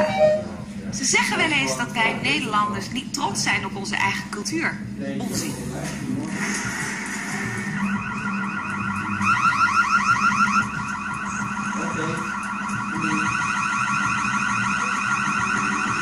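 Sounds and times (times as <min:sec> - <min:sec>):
electronic alarm rising sweeps: 0:06.8 - 0:16.0.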